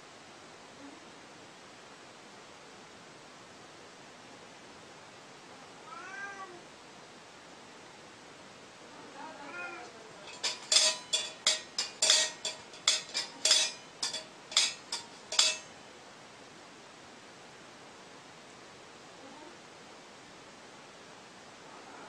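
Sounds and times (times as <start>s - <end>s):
cat meowing: 5.8s - 6.6s, 9.4s - 9.9s
sharp ringing clinks: 10.3s - 15.7s.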